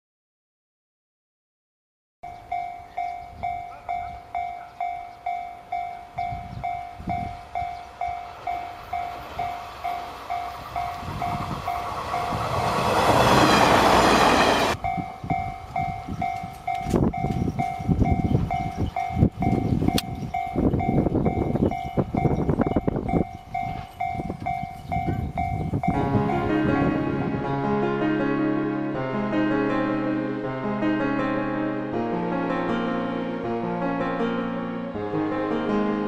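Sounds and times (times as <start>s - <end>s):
level-crossing bell dinging: 2.2s - 27.0s
diesel railcar passing: 2.3s - 36.0s.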